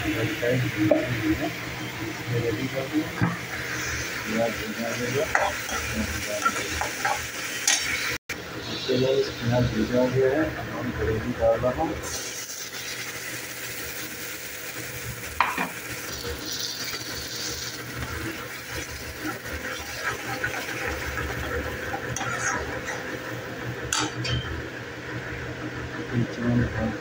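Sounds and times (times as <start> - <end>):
tomato sizzling in hot oil: 0.0 - 9.8, 12.0 - 24.3
steel spoon scraping pan: 22.1 - 23.1.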